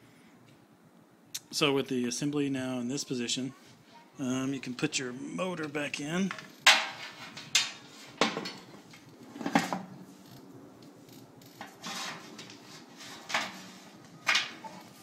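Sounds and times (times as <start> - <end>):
metal clanks and knocks: 6.3 - 9.9, 13.2 - 14.9
metal scraping: 6.6 - 10.4, 11.0 - 15.0.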